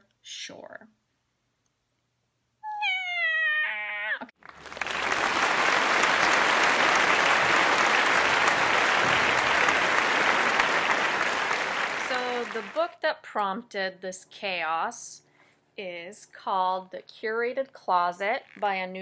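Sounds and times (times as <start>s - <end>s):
crowd applause: 4.4s - 12.8s.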